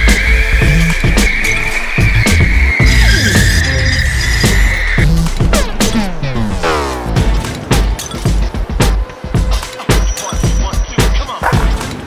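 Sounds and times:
car tyres squealing: 0:00.0 - 0:05.0.

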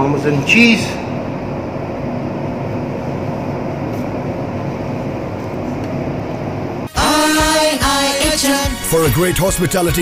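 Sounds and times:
low rumbling background noise: 0:00.0 - 0:06.9
faint hum: 0:00.0 - 0:08.8.

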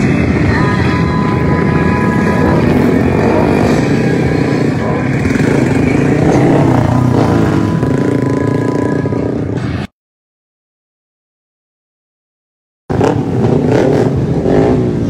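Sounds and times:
motorcycle engines revving: 0:00.0 - 0:09.9, 0:12.9 - 0:15.0.

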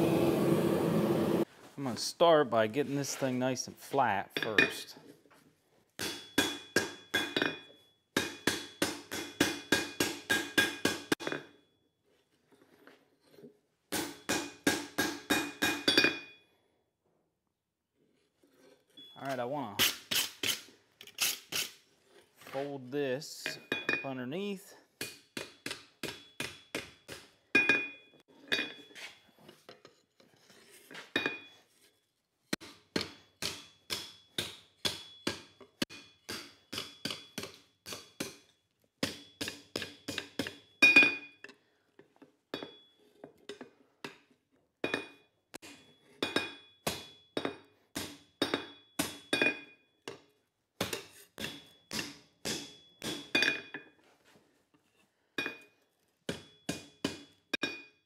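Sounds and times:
hammer striking metal on anvil: 0:06.0 - 0:11.5, 0:13.9 - 0:16.3, 0:25.0 - 0:28.0, 0:32.6 - 0:41.3, 0:44.8 - 0:50.2, 0:50.8 - 0:53.8, 0:56.3 - 0:57.9
anvil ringing: 0:51.4 - 0:53.7.

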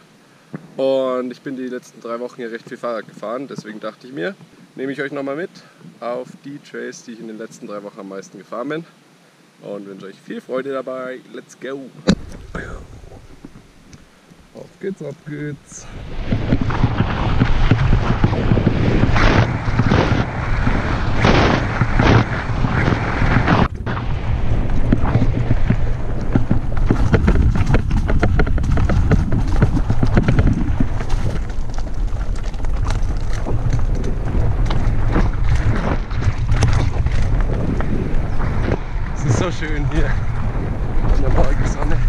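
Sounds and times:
wind buffeting microphone: 0:12.1 - 0:14.5, 0:15.7 - 0:42.0
bike tyres crunching over ground: 0:12.1 - 0:42.0.

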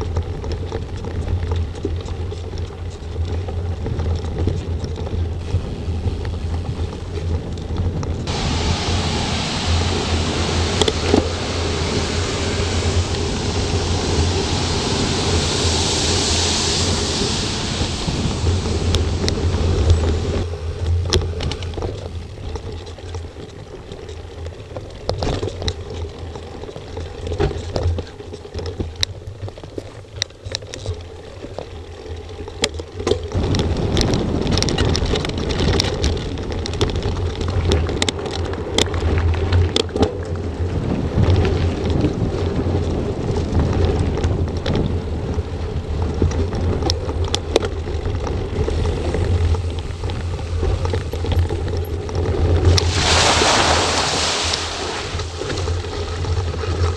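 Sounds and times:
bike knocking and rattling: 0:00.0 - 0:08.4, 0:17.2 - 0:53.0, 0:54.8 - 0:56.9
wind buffeting microphone: 0:00.0 - 0:29.6, 0:33.3 - 0:56.9
bike tyre rumble: 0:00.0 - 0:56.9.

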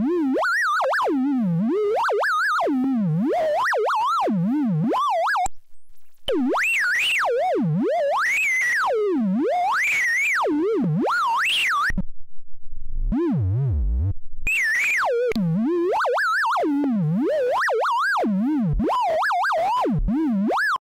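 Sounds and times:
low wobbling synth buzz: 0:11.7 - 0:15.9.

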